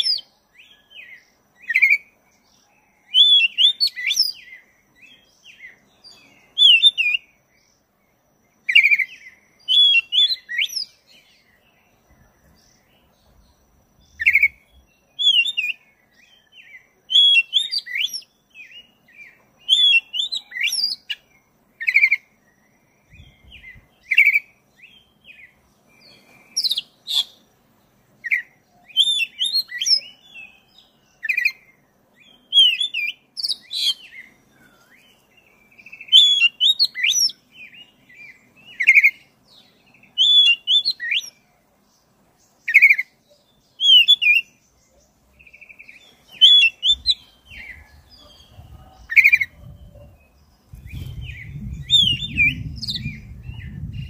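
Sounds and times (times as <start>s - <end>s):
bird singing chirps and trills: 0.0s - 54.0s.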